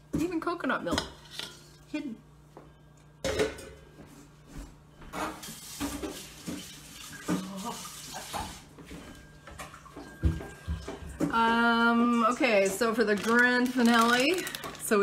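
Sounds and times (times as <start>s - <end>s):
metal bowl clanking on stovetop: 3.2s - 3.9s
kitchen clatter and knocks: 3.2s - 4.0s, 5.1s - 8.6s, 9.2s - 11.6s, 12.5s - 14.9s.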